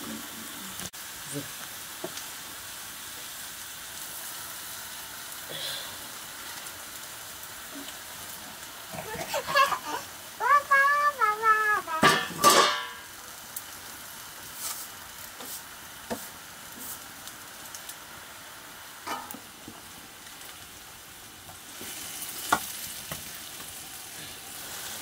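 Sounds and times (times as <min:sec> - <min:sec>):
greens sizzling in pan: 0:00.0 - 0:25.0
metal plate clanking on pan: 0:12.0 - 0:13.1, 0:19.0 - 0:19.4.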